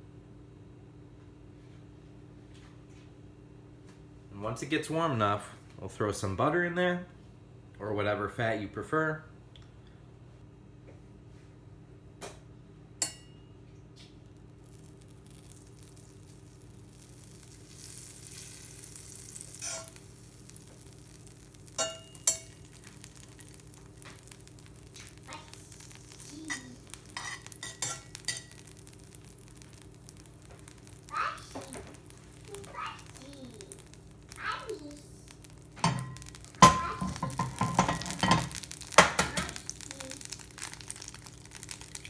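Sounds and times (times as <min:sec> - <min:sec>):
butter sizzling in a frying pan: 0:14.3 - 0:42.0
sharp pops and ticks: 0:20.0 - 0:42.0.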